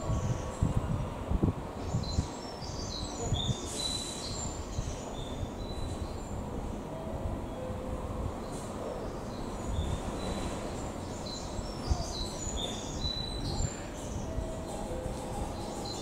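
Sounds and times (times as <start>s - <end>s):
small birds chirping: 1.8s - 6.4s, 8.4s - 16.0s.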